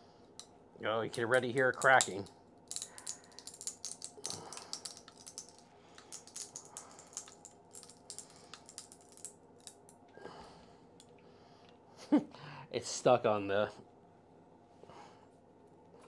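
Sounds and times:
plastic infill crackling: 1.1s - 9.8s.

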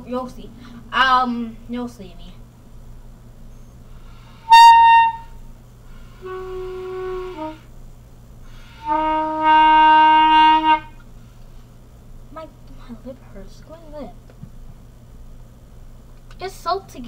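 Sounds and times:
clarinet notes: 4.4s - 5.5s, 6.2s - 7.7s, 8.7s - 11.0s.

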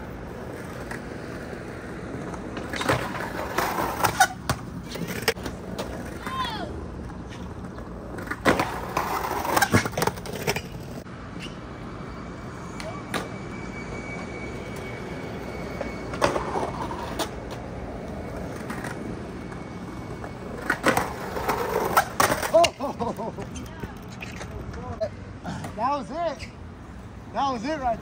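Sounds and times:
skateboard wheels rolling on concrete: 0.0s - 28.0s
skateboard clacks and scrapes: 0.3s - 11.6s, 14.6s - 25.0s.

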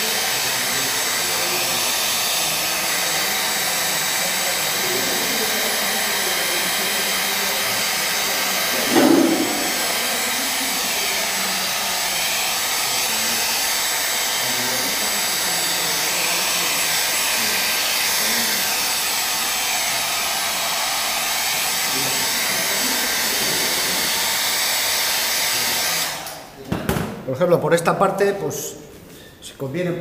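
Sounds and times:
hair dryer blowing: 0.0s - 26.5s
knock: 8.8s - 10.0s.

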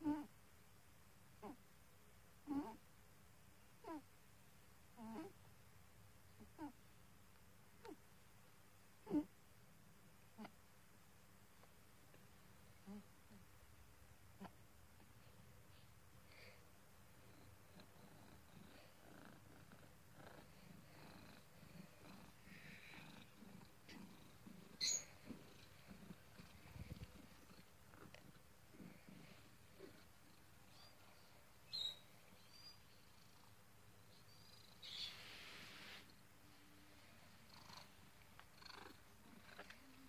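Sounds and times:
cat snoring: 2.4s - 2.8s, 3.8s - 4.0s, 5.0s - 5.4s, 9.0s - 9.3s, 12.8s - 13.4s, 17.2s - 30.9s.

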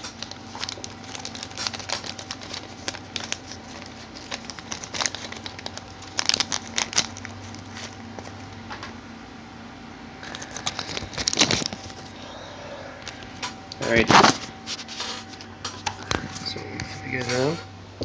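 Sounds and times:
plastic wrapping crinkling: 0.0s - 8.5s, 10.2s - 12.2s.

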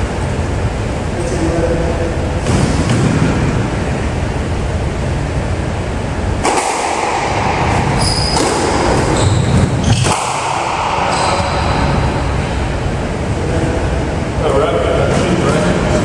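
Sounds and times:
squash ball smacking rackets and walls: 2.4s - 4.0s, 6.3s - 12.7s
sneakers squeaking on wooden floor: 7.8s - 10.1s.

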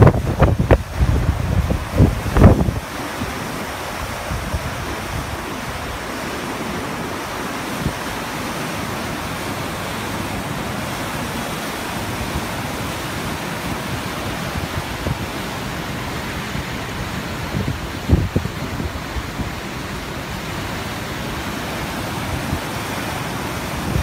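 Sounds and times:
wind buffeting microphone: 0.0s - 6.1s, 16.4s - 20.6s
river rushing: 0.0s - 24.0s.

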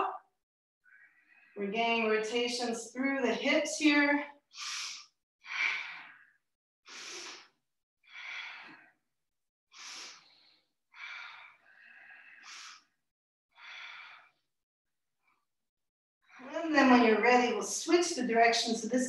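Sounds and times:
slow human breathing: 0.9s - 1.6s, 4.5s - 9.1s, 9.7s - 14.5s.

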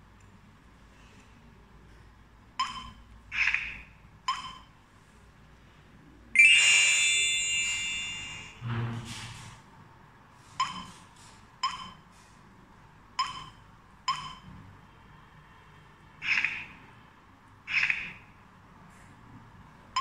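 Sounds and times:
long confirmation tone: 6.4s - 8.6s.

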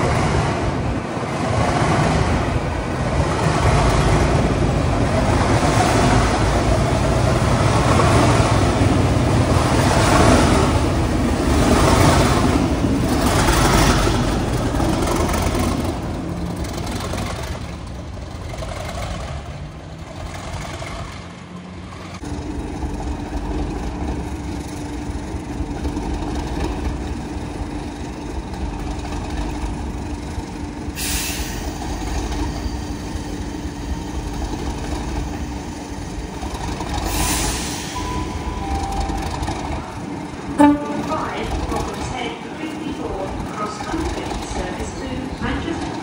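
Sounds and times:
diesel locomotive engine idling: 2.2s - 46.0s
air brake hisses: 31.0s - 31.9s, 37.0s - 38.1s.

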